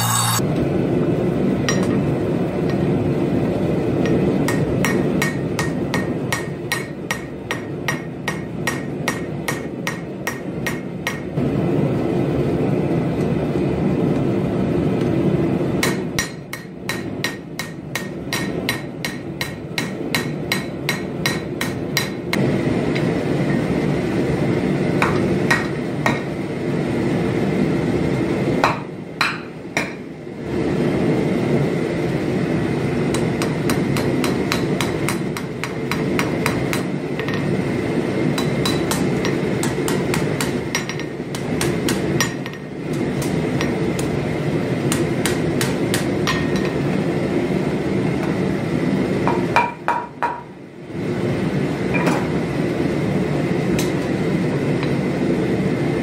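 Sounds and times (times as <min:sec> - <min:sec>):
hammer striking steel on anvil: 0:00.0 - 0:00.4, 0:04.0 - 0:11.3, 0:15.8 - 0:22.4, 0:25.0 - 0:26.3, 0:28.6 - 0:30.1, 0:33.1 - 0:37.4, 0:38.3 - 0:44.2, 0:44.9 - 0:46.8.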